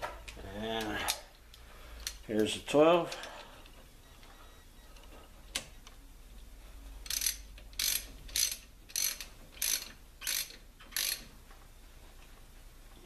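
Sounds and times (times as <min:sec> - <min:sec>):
ratchet wrench clicking: 0:07.0 - 0:11.3.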